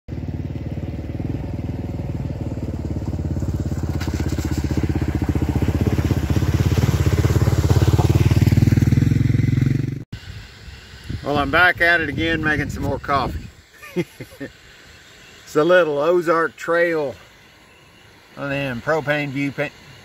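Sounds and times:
water splashing around wheels: 0.1 - 9.8
motorcycle engine running: 0.1 - 10.0.

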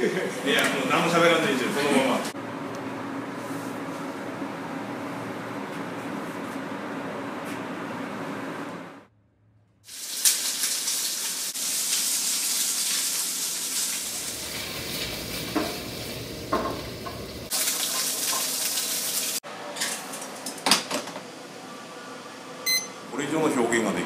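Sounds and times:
chicken sizzling in a pan: 9.9 - 19.4.

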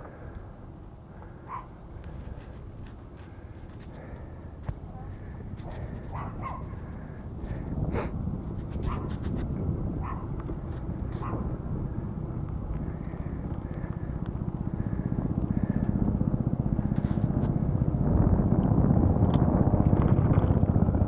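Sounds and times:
helicopter rotor chop: 0.0 - 21.0.

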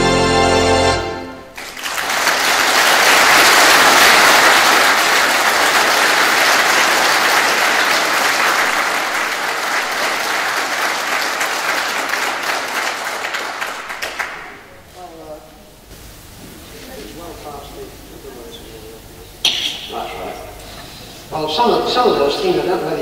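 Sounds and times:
theatre organ chord: 0.0 - 1.6
audience applause: 1.5 - 14.8.

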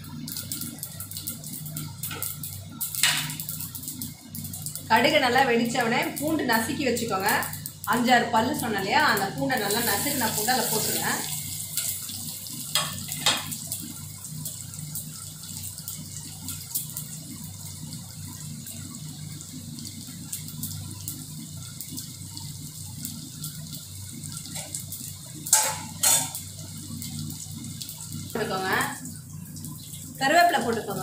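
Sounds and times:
garlic sizzling in hot oil: 0.0 - 31.0.

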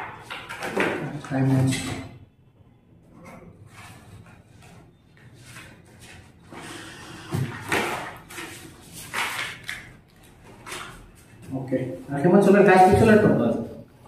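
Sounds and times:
paper pages rustling: 0.0 - 1.9, 3.2 - 6.6, 7.4 - 11.9.

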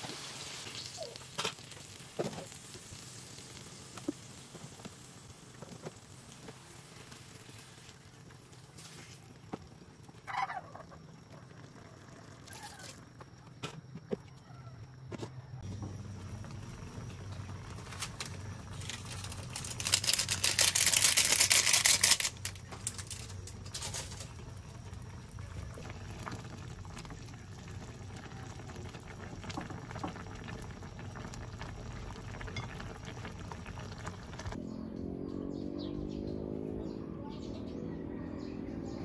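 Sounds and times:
stew bubbling in a pan: 0.0 - 14.9, 15.6 - 34.6.

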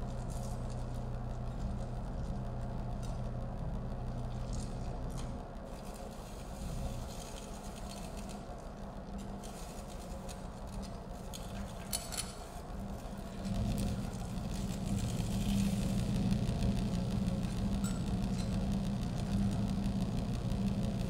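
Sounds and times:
low electronic drone: 0.0 - 5.7, 12.5 - 21.0
small objects scraping and clicking: 4.3 - 8.5, 9.2 - 16.6.

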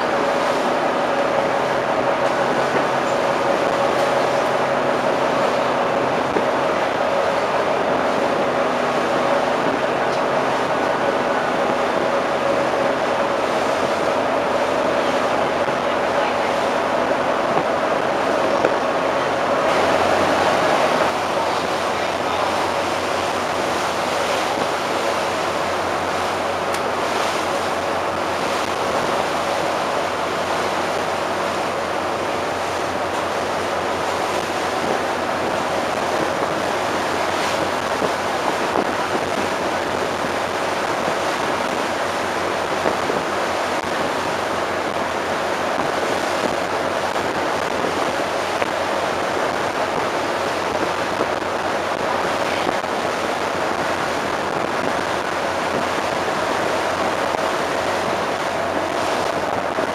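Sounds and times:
low even hum: 0.0 - 47.1
sea water rushing past ship: 0.0 - 59.9
wind buffeting microphone: 0.0 - 59.9.

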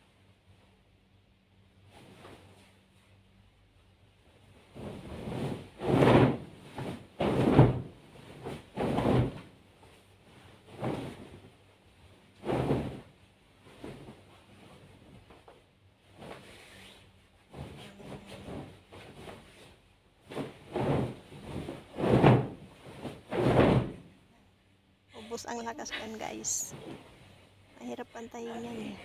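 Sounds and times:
bedding fabric rustling and flapping: 1.8 - 24.1.

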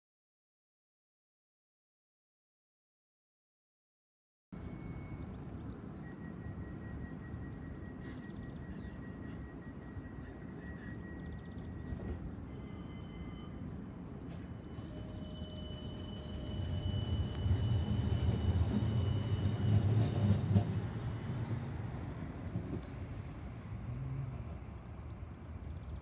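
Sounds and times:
high equipment whines: 4.6 - 23.5
tram electrical hum: 4.6 - 26.0.

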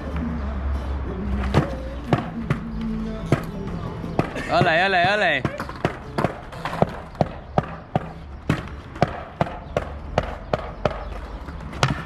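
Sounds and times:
skateboard clacking on stone: 4.2 - 9.8.

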